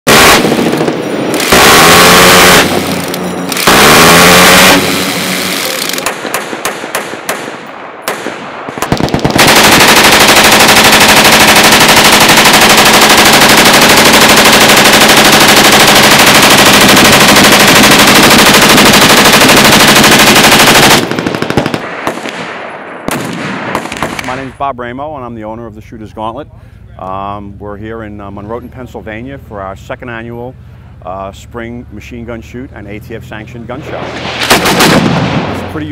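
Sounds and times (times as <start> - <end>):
machine-gun bursts: 0.1 - 7.4, 8.8 - 22.3, 34.5 - 35.1
single gunshots: 0.1 - 14.2, 20.9 - 24.5, 33.8 - 35.9.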